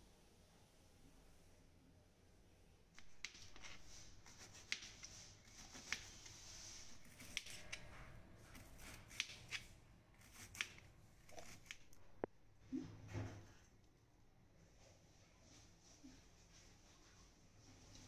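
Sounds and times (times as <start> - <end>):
knife slicing on plastic board: 3.0 - 12.2.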